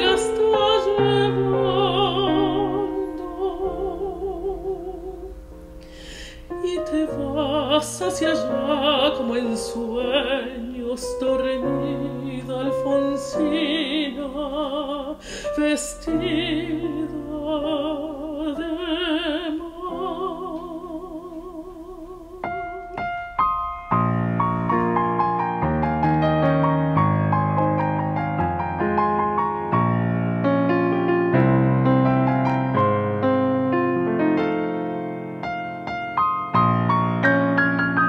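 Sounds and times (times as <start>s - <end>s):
woman singing with vibrato: 0.0s - 23.4s
digital piano: 0.0s - 38.0s.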